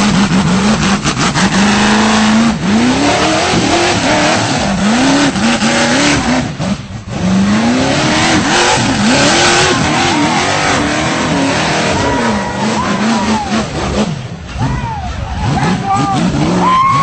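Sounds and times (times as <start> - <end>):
engine revving hard: 0.0 - 17.0.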